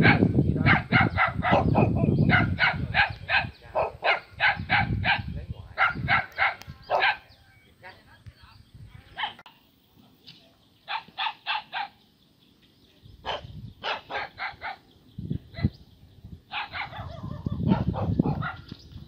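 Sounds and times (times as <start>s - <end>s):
dog barking: 0.0s - 7.3s, 9.2s - 9.5s, 10.9s - 12.0s, 13.2s - 14.8s, 16.5s - 18.7s.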